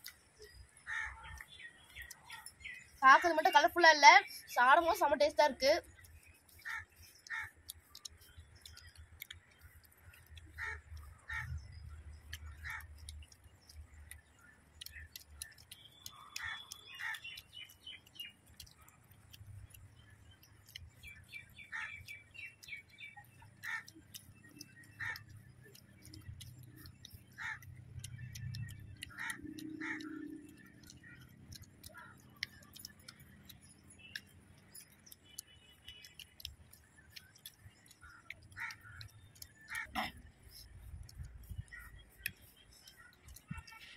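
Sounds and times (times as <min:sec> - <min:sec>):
birds chirping: 0:00.0 - 0:43.9.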